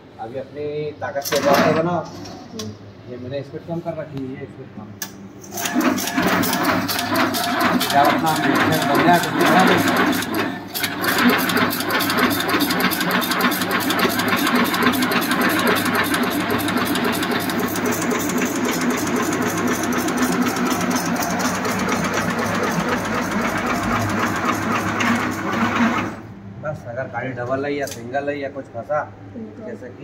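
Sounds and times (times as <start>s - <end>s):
rapid mechanical clatter: 5.5s - 26.2s
machine motor humming: 5.5s - 26.3s.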